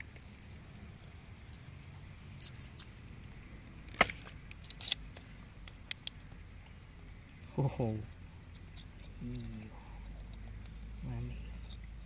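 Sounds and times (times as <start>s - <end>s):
fingers squishing wet stones in mud: 0.0s - 3.0s.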